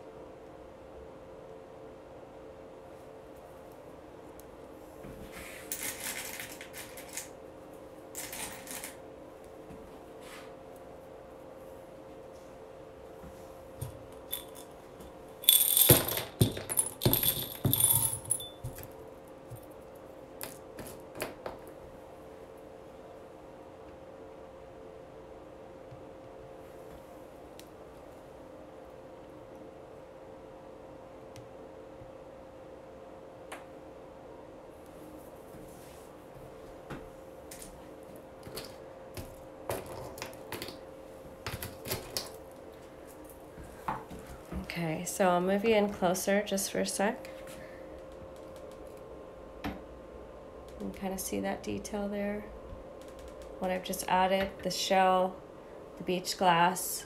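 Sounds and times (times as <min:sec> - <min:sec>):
faint steady hum: 0:00.0 - 0:57.0
seashells and glass clinking: 0:14.3 - 0:14.7, 0:15.4 - 0:18.8
shells clicking and tapping: 0:14.3 - 0:18.9.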